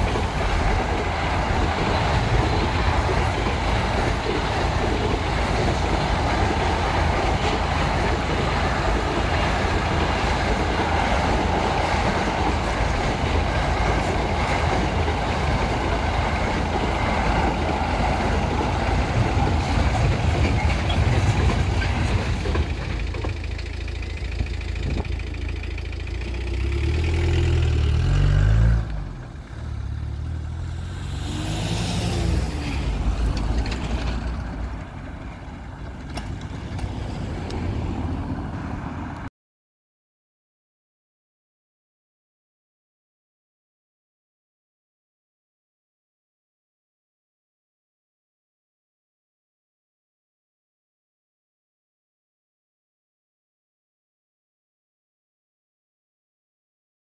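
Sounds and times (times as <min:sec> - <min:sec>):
freight train rolling over crossing: 0:00.0 - 0:26.2
vehicle engines idling and pulling away: 0:21.0 - 0:39.3
car passing close: 0:26.8 - 0:34.7.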